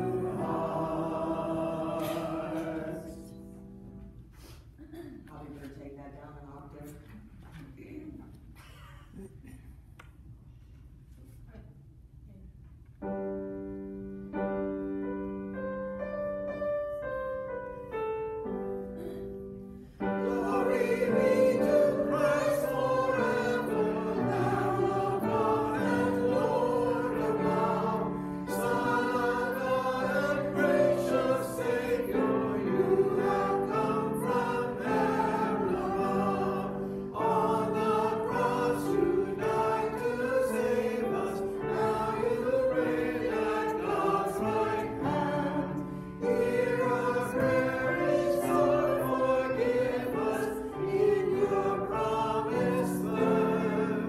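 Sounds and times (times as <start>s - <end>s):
congregation singing a hymn: 0.0s - 4.0s, 18.7s - 54.0s.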